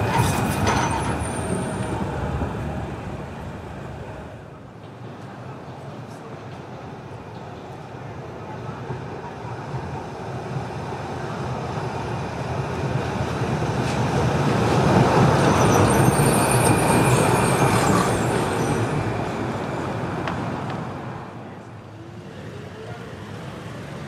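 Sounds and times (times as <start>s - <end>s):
tram wheels rumbling on rails: 0.0s - 24.0s
faint high wheel squeal: 15.2s - 20.0s.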